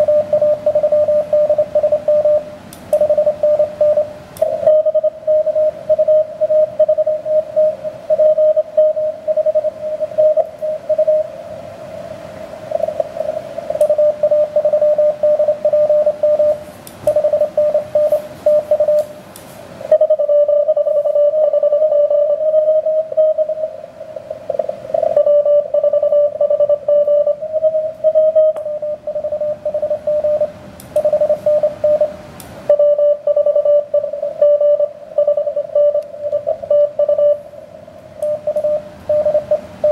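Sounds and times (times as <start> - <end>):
morse code tone: 0.0 - 11.4, 12.6 - 19.1, 19.9 - 37.6, 38.2 - 39.9
radio band hiss: 9.0 - 14.8, 15.8 - 20.0.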